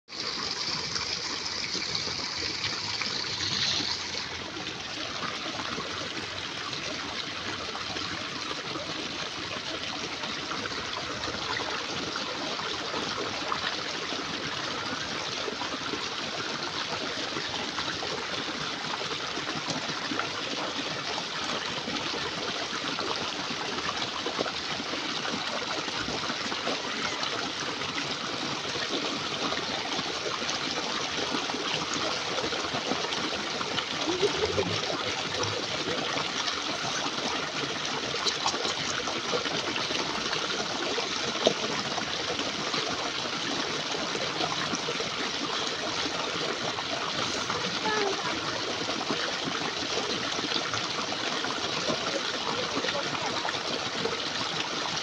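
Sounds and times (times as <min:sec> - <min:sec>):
water pouring and splashing: 0:00.1 - 0:55.0.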